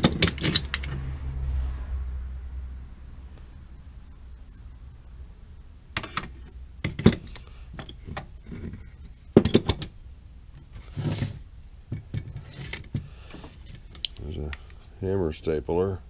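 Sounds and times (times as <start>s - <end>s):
vise scraping on shelf: 10.7s - 11.4s, 12.0s - 13.9s.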